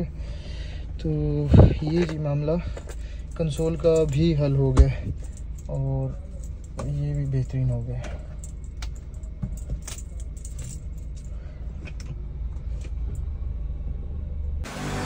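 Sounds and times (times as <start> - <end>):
steady low hum: 0.0 - 15.0
keys clinking: 1.9 - 11.4.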